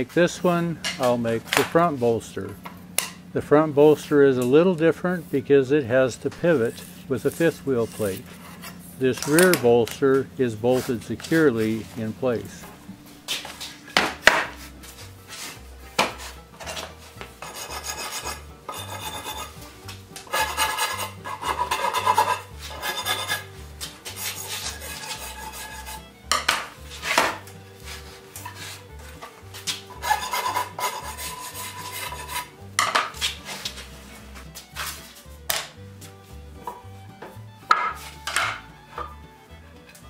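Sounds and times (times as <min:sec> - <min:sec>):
hand tool rasping wood: 0:06.4 - 0:10.0, 0:10.6 - 0:12.1, 0:14.2 - 0:35.2
timber knocking: 0:13.9 - 0:14.6, 0:36.6 - 0:39.2.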